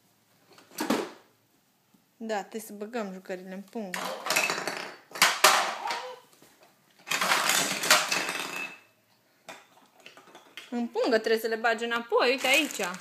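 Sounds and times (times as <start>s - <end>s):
plastic toys clattering: 3.9s - 6.2s, 7.0s - 8.8s, 9.5s - 10.8s, 12.2s - 13.0s
plastic bag rustling: 12.2s - 13.0s.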